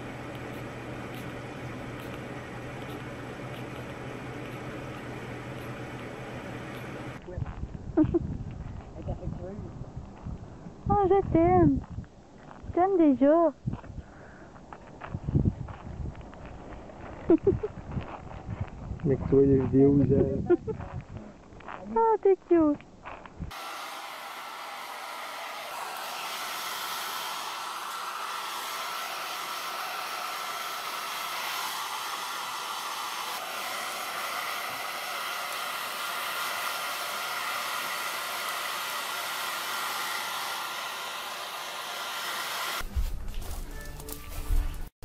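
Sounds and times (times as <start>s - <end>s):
hair dryer blowing: 0.0s - 7.2s, 23.5s - 42.9s.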